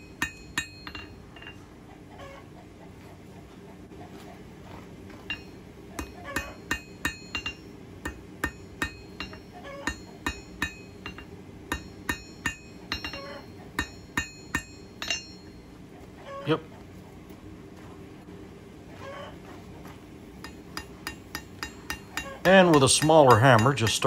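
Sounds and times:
hammer striking steel on anvil: 0:00.0 - 0:01.6, 0:05.2 - 0:15.6, 0:20.4 - 0:24.0.

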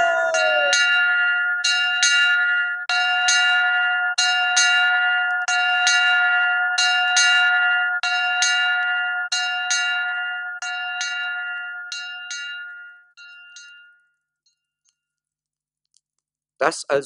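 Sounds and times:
person crying out: 0:00.0 - 0:00.8.

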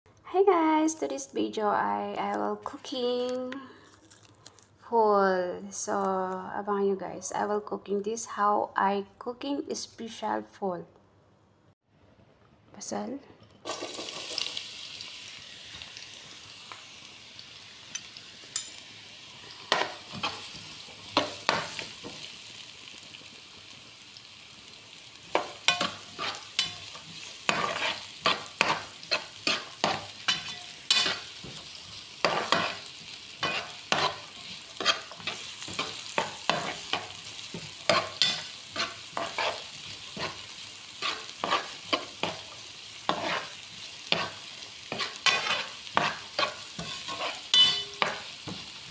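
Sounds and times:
onion sizzling in oil: 0:13.6 - 0:48.9
spoon scraping a pan: 0:17.9 - 0:22.2, 0:25.3 - 0:48.9.

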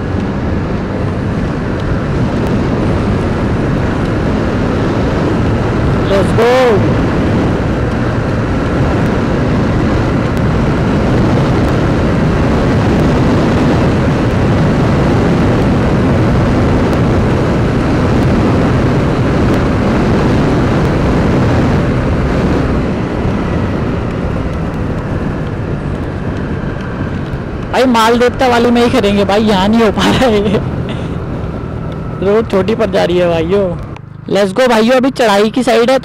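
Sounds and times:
wind rushing over microphone: 0:00.0 - 0:36.0
scooter engine: 0:20.5 - 0:36.0.

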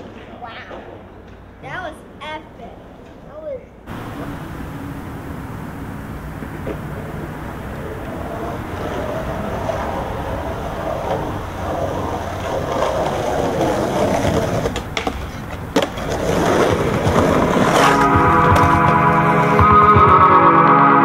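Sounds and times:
skateboard wheels on concrete: 0:00.0 - 0:21.0
skateboard clacks: 0:03.9 - 0:20.4.

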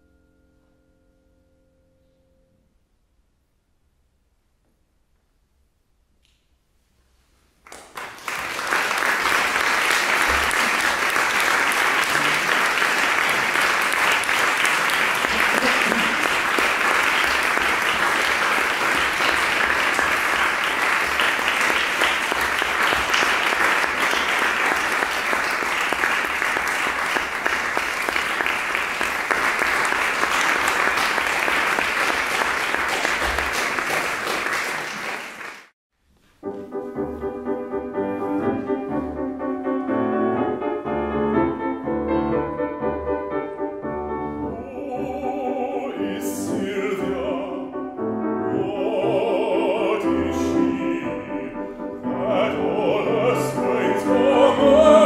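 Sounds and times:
audience applauding: 0:07.7 - 0:35.8.

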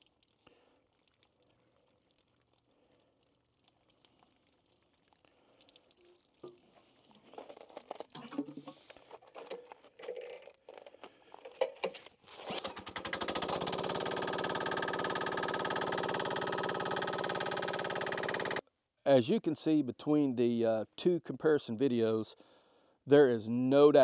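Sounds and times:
hands handling engine: 0:07.9 - 0:13.7.

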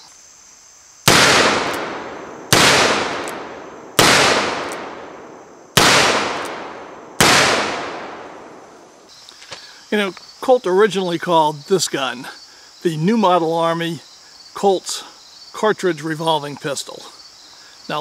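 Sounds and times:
revolver shots with echo: 0:01.1 - 0:08.8.

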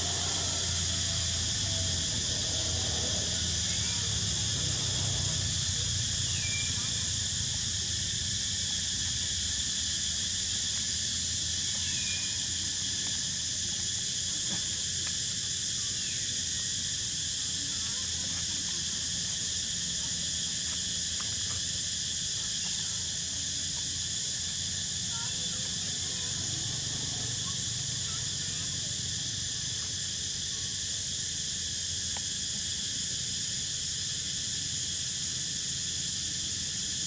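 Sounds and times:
insect chorus drone: 0:00.0 - 0:37.0
short insect chirps: 0:03.5 - 0:07.5, 0:09.3 - 0:18.0.

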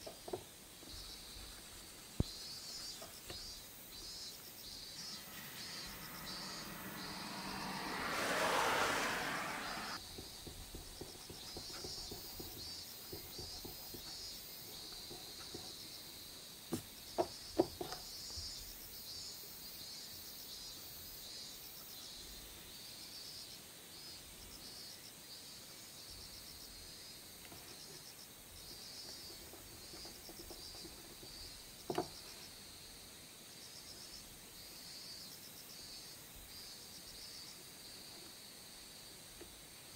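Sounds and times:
insects chirping: 0:00.0 - 0:10.0.

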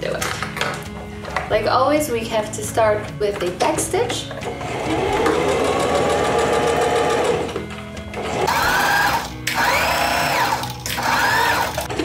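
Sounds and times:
background music: 0:00.0 - 0:12.0
electric sewing machine stitching: 0:04.5 - 0:07.6, 0:08.2 - 0:12.0.

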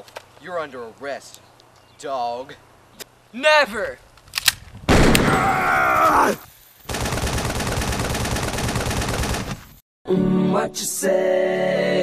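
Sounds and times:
gunshot: 0:04.9 - 0:05.8
rapid automatic gunfire: 0:06.9 - 0:09.6.

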